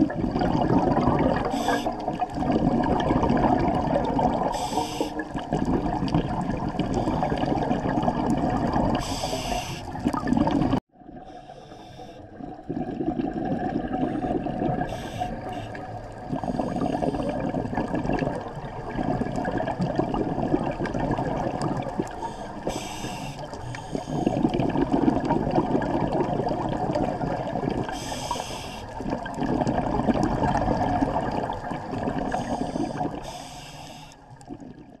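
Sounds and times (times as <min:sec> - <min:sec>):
exhaled bubbles gurgling: 0:00.0 - 0:35.0
diver breathing through regulator: 0:01.4 - 0:02.2, 0:04.4 - 0:06.0, 0:08.9 - 0:10.1, 0:11.2 - 0:12.4, 0:13.9 - 0:17.7, 0:22.0 - 0:25.0, 0:27.9 - 0:29.0, 0:32.2 - 0:34.3
short regulator hiss: 0:04.6 - 0:05.2, 0:09.0 - 0:09.9, 0:22.3 - 0:24.2, 0:28.0 - 0:28.9, 0:32.6 - 0:34.2.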